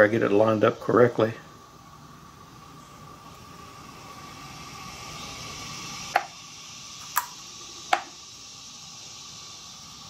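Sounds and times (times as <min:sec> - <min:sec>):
steady low hiss: 0:00.0 - 0:10.0.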